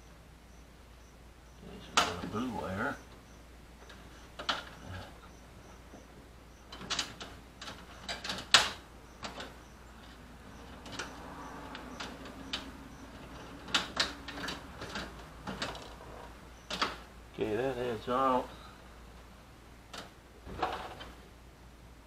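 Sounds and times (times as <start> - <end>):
wire and metal parts rattling: 6.7 - 17.1.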